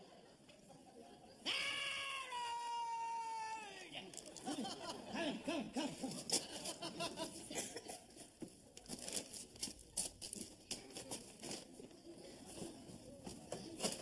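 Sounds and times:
footsteps: 8.0 - 14.0.

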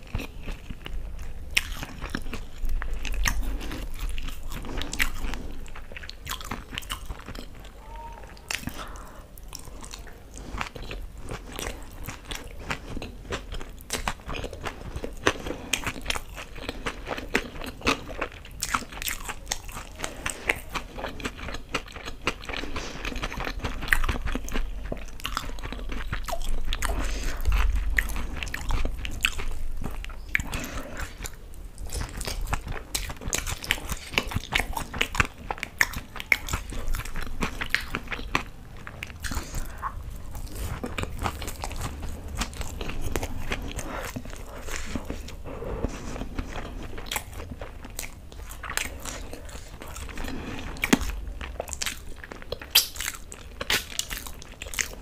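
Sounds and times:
chewing and crunching: 0.0 - 55.0.

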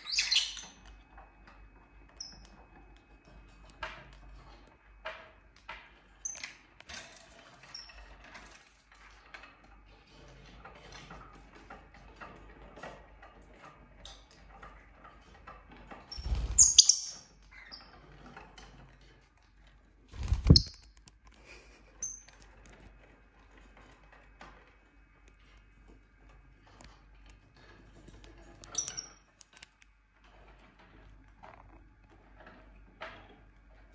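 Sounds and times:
lovebirds chirping and squeaking: 0.0 - 0.9, 16.1 - 18.2, 20.2 - 21.0, 21.9 - 22.5, 28.4 - 29.3
faint scratches and clicks: 17.9 - 33.9.

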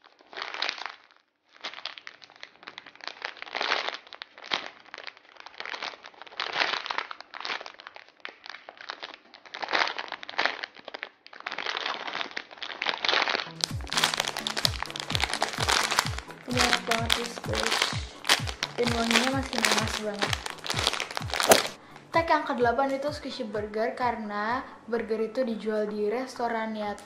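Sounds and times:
plastic bag crinkling: 0.0 - 22.2.

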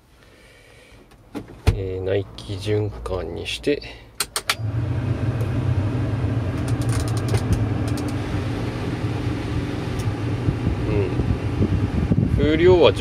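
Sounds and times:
blower fan running: 4.6 - 13.0
fan knob clicks: 6.6 - 8.2.

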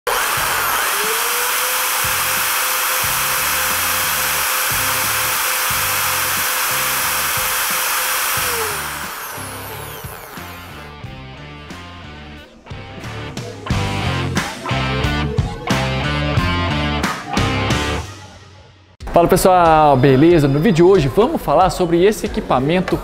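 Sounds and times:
electric plaster float motor whine: 0.1 - 10.9
music with bass line: 2.0 - 18.2.

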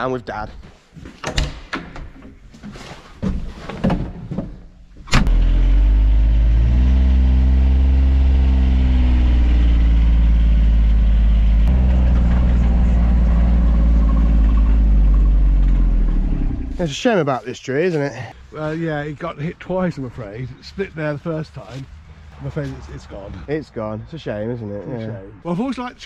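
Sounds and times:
diesel engine running: 5.3 - 17.0.

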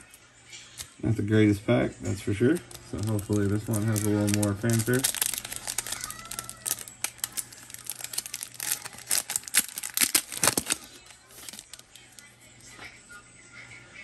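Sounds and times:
foil wrapper crinkling and tearing: 2.3 - 12.2.

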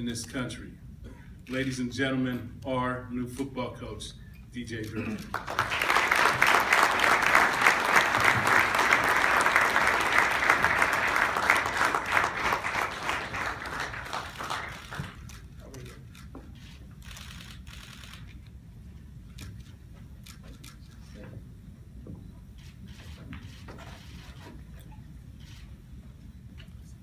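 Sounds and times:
audience applauding: 5.2 - 15.4.

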